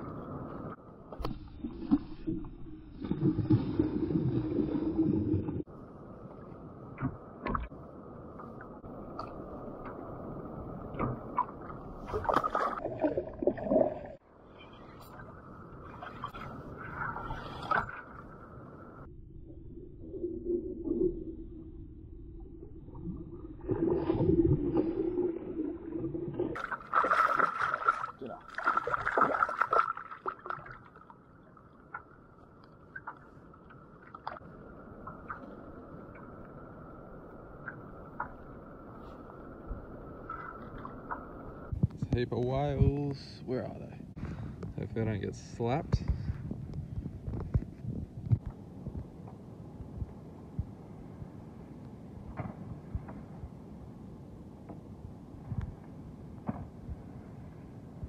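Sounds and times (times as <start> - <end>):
water lapping at hull: 0.0 - 19.1, 22.8 - 44.8
fish splashing: 26.5 - 31.1.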